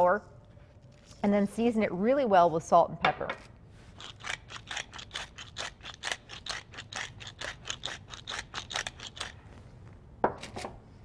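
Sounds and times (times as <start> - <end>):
pepper mill grinding: 3.9 - 9.5.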